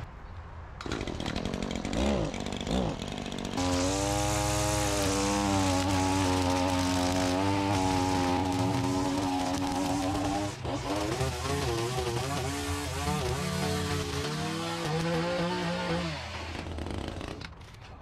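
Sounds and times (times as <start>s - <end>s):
string trimmer engine running: 0.8s - 17.5s.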